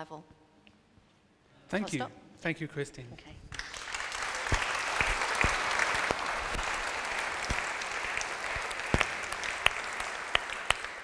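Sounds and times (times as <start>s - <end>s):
audience applauding: 3.5s - 11.0s
loud single claps nearby: 3.5s - 11.0s.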